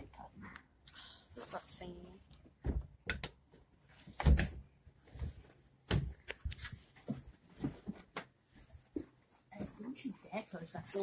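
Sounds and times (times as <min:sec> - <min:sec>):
footsteps: 0:05.0 - 0:10.0.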